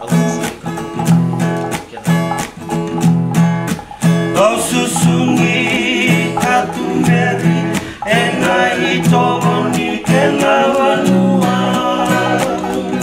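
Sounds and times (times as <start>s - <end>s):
strummed acoustic guitars: 0.0s - 13.0s
men singing in harmony: 3.8s - 13.0s.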